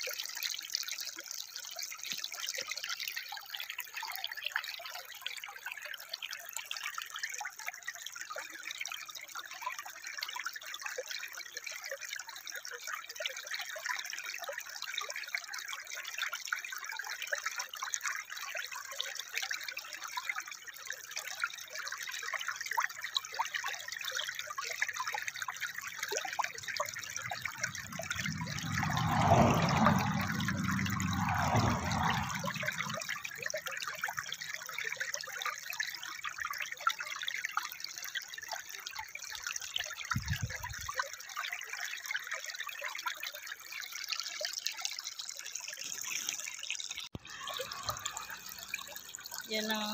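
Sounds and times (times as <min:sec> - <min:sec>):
stream trickling over stones: 0:00.0 - 0:49.9
deeper water rush: 0:25.0 - 0:34.5, 0:40.1 - 0:40.9.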